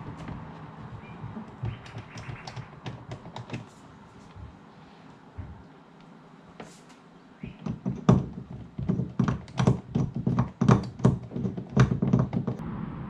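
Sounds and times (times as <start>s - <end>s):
knocks on hard plastic fittings: 0.0s - 3.7s, 7.5s - 12.6s.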